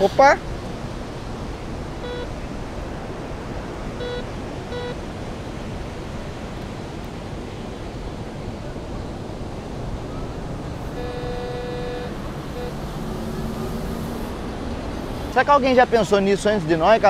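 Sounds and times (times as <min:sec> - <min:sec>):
surf and wind: 0:00.0 - 0:17.0
metal detector beeps: 0:02.0 - 0:02.3, 0:04.0 - 0:05.0, 0:10.8 - 0:12.9.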